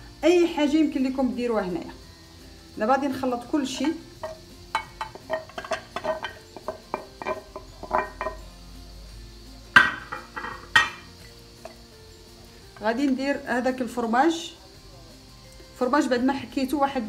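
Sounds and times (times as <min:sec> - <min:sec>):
spatula clinking on plate: 0:03.8 - 0:08.4, 0:09.8 - 0:11.8.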